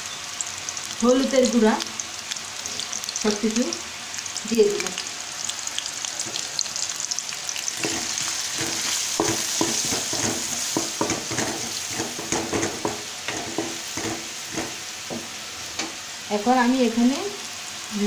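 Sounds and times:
food sizzling in hot oil: 0.0s - 18.0s
spoon scraping and knocking pan: 7.7s - 16.0s.

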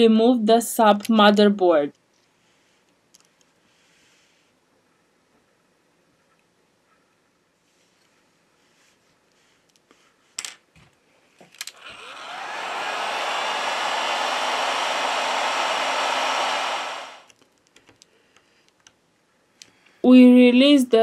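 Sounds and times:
heat gun fan blowing: 11.7s - 17.3s.

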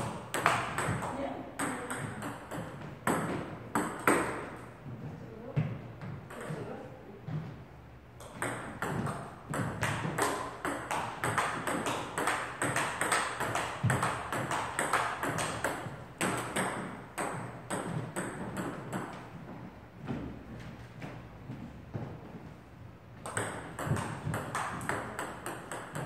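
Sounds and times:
ball bouncing on table: 0.0s - 4.5s, 8.2s - 19.2s, 23.2s - 26.0s
ping pong ball hitting bats: 0.0s - 4.7s, 6.0s - 6.8s, 8.2s - 19.3s, 23.2s - 26.0s.

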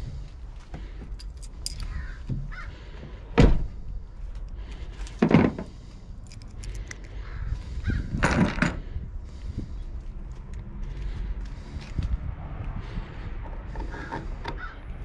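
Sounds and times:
keys and lock parts clinking: 1.1s - 2.0s, 6.2s - 7.1s
truck door shutting: 3.4s - 3.8s.

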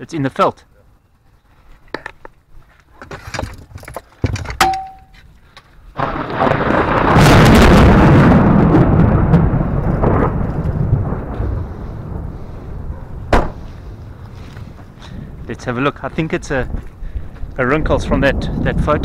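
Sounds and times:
handling knocks and clicks: 1.8s - 5.3s
thunder rolling: 6.0s - 16.8s, 17.6s - 19.0s.

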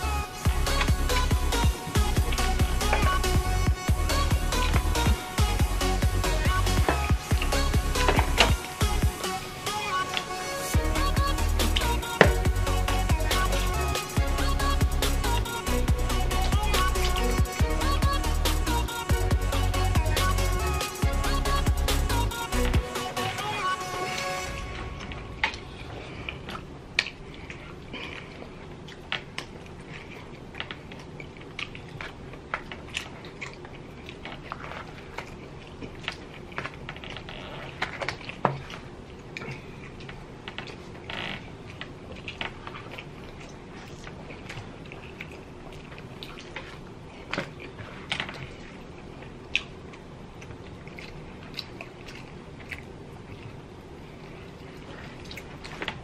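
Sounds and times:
low background hum: 0.0s - 56.0s
people chewing and tearing chicken: 24.1s - 56.0s.

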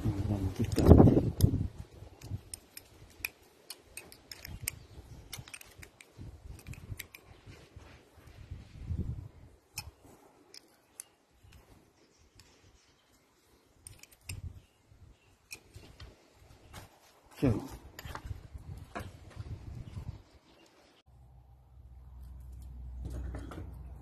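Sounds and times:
small metal parts clicking: 0.6s - 7.3s, 13.8s - 14.6s.

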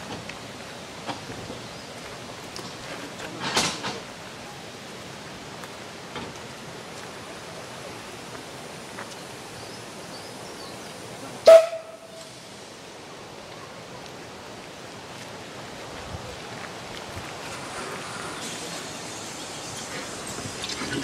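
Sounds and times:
steam locomotive moving slowly: 0.0s - 21.0s
steam whistle toot: 11.4s - 12.3s.

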